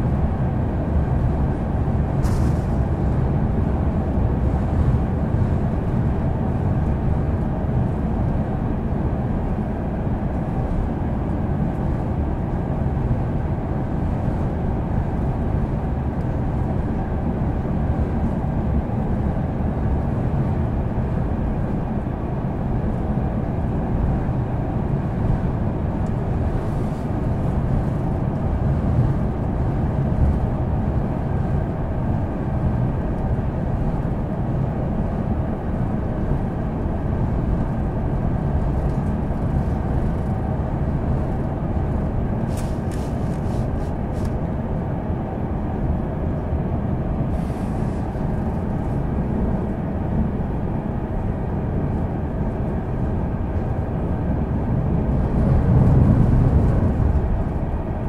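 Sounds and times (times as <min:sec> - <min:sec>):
train wheels rumbling on rails: 0:00.0 - 0:08.0, 0:35.7 - 0:44.4, 0:53.5 - 0:58.0.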